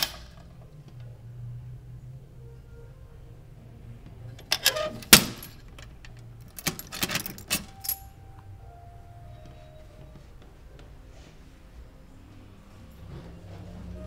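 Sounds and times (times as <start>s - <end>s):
metal mailbox door clacking shut: 4.4s - 5.7s
key clicking in lock: 4.4s - 8.0s
keys jangling: 4.4s - 8.1s.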